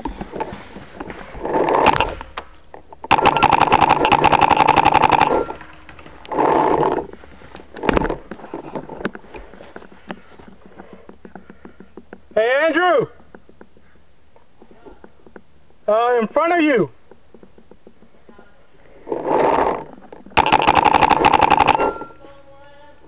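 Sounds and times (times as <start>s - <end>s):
paintball marker firing: 3.1s - 5.6s, 20.4s - 22.1s.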